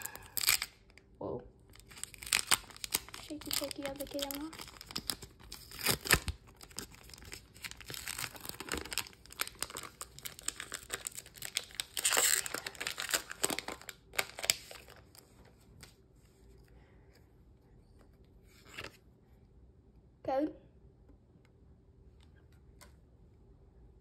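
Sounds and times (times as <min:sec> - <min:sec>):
foil wrapper crinkling and tearing: 0:00.0 - 0:01.0, 0:01.7 - 0:15.3.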